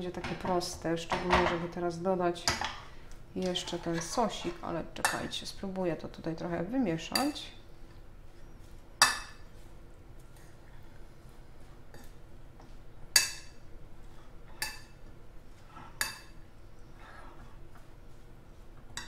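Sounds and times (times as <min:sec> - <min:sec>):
fork stirring salad: 0:08.6 - 0:15.0.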